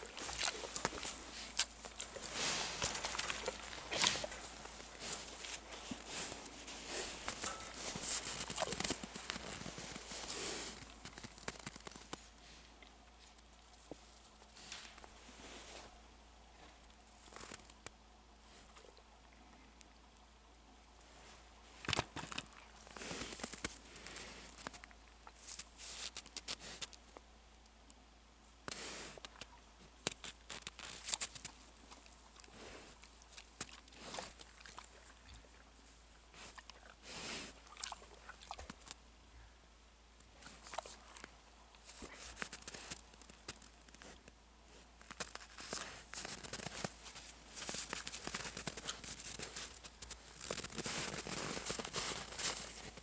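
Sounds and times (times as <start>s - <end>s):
boar steps crunching snow: 0.0s - 12.5s, 21.7s - 27.0s, 28.7s - 39.0s, 40.2s - 53.0s.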